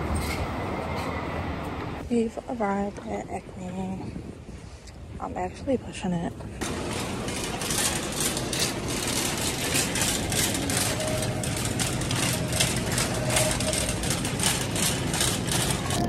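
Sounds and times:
shopping cart rattling: 6.6s - 16.0s.

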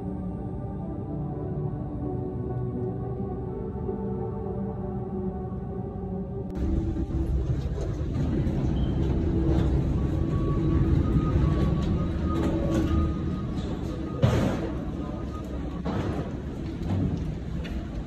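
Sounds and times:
background music: 0.0s - 18.0s
low rumble with faint hum: 6.4s - 18.0s.

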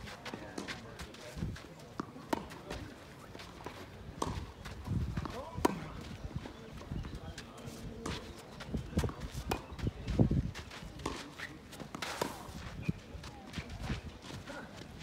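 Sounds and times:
footsteps sliding on clay: 0.0s - 15.0s
tennis balls struck by rackets: 1.9s - 4.6s, 5.2s - 6.0s, 8.0s - 9.8s, 11.0s - 12.6s.

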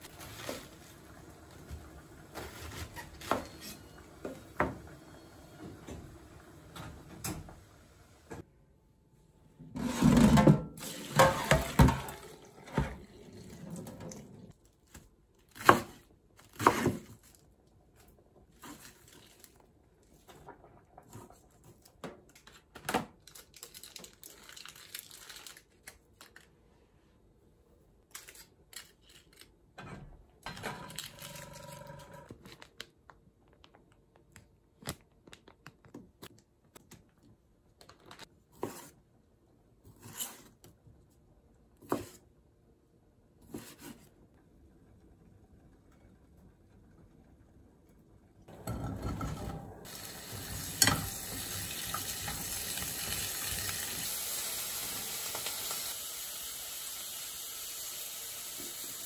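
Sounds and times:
pots and utensils clattering: 9.8s - 14.5s, 48.5s - 53.6s
water pouring into metal sink: 10.8s - 14.2s, 48.6s - 59.0s.

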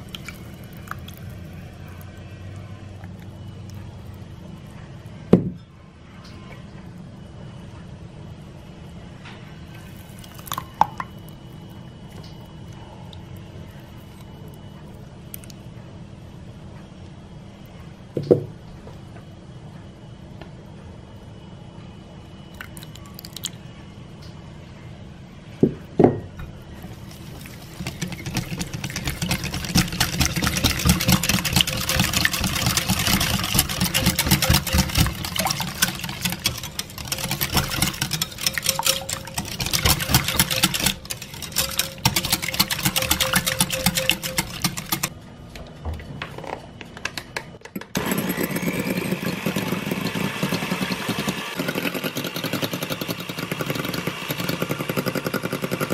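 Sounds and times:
whisk rattling in glass bowl: 26.8s - 45.1s
electric hand mixer running: 27.0s - 45.1s, 48.0s - 55.8s.

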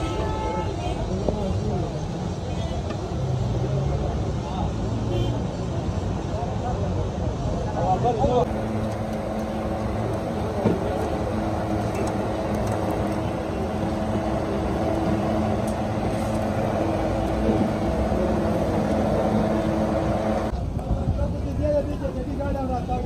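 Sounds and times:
street noise: 0.0s - 23.0s
motor humming: 8.5s - 20.5s.

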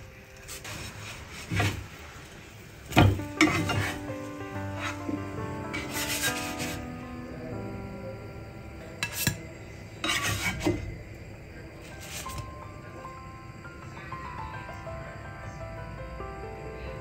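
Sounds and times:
metal spatula scraping griddle: 0.4s - 6.9s, 9.0s - 10.9s, 11.9s - 12.4s.

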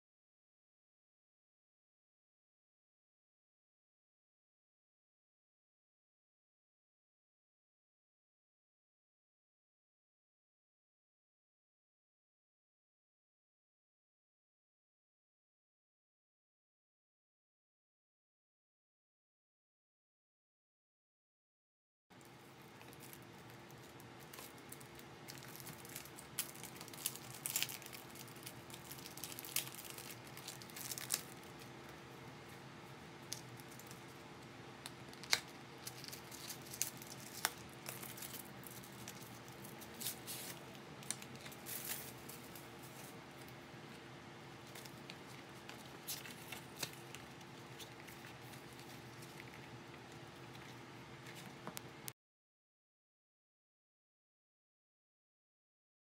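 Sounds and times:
faint steady hum: 22.1s - 52.1s
paper crinkling and rustling: 22.6s - 31.7s, 35.1s - 43.6s, 44.6s - 51.8s.

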